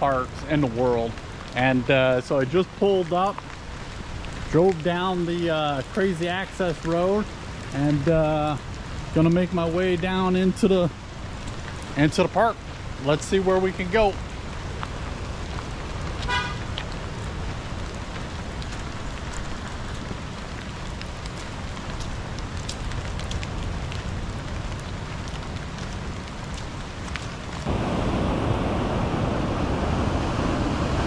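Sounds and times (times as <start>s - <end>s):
surf tumbling beach stones: 0.0s - 31.0s
wind rumbling on microphone: 0.0s - 31.0s.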